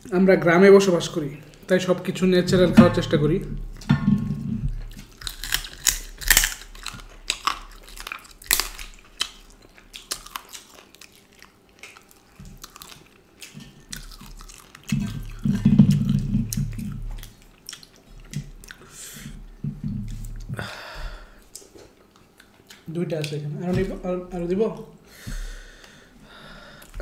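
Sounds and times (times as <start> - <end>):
low muffled sound: 0.4 - 4.9
close chewing and biting: 3.6 - 23.4.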